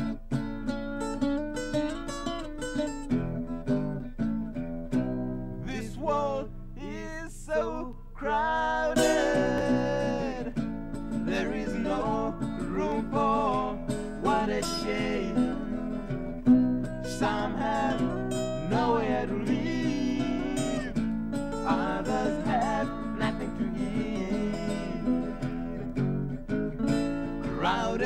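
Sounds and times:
acoustic guitar strummed and picked: 0.0s - 28.0s
man singing long held notes: 5.7s - 10.6s, 11.2s - 16.1s, 17.0s - 21.0s, 21.6s - 25.9s.

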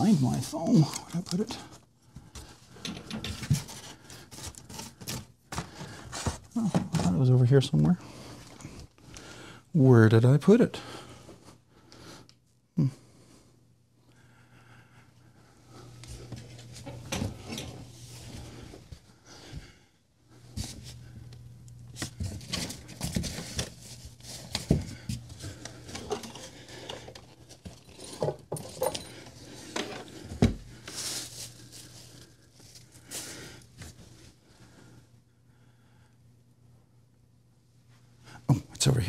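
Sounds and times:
steady low hum: 0.0s - 39.0s
knocks and clatters of objects: 2.2s - 7.3s, 21.9s - 30.7s
rustling while rummaging: 21.9s - 34.3s.

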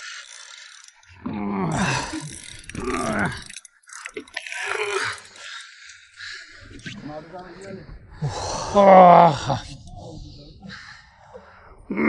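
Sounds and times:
man groaning with effort: 1.2s - 2.2s, 8.2s - 9.7s
man grunting: 8.2s - 9.6s.

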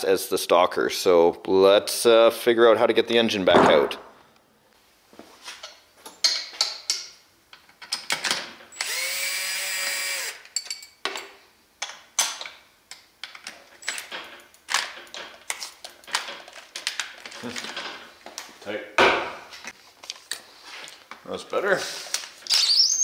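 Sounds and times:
tool and parts clicking: 5.6s - 9.2s
cordless drill running: 8.8s - 10.4s.

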